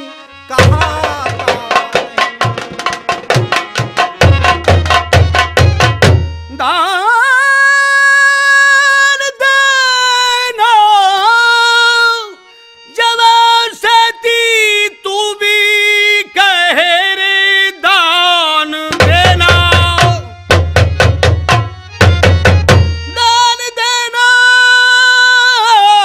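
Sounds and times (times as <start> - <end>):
man singing high held notes: 0.0 - 2.4, 6.5 - 20.4, 23.0 - 26.0.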